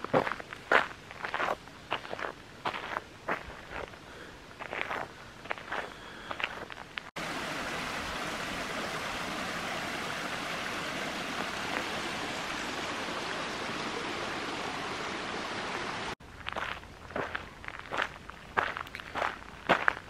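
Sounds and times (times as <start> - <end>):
footsteps on a path: 0.0 - 7.1, 16.2 - 20.0
brook running over rocks: 4.6 - 20.0.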